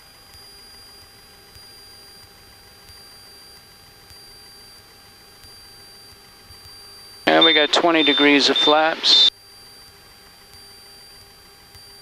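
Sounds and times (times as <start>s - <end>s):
high electrical whine: 7.3s - 9.3s.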